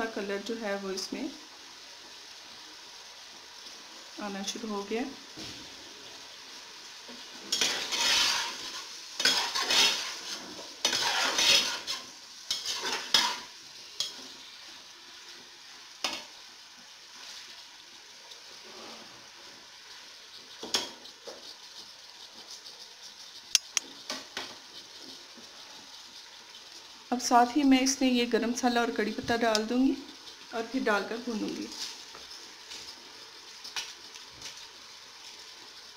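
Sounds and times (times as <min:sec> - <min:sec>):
food sizzling: 0:00.0 - 0:35.9
spatula scraping a metal pot: 0:07.4 - 0:14.2, 0:20.1 - 0:26.4.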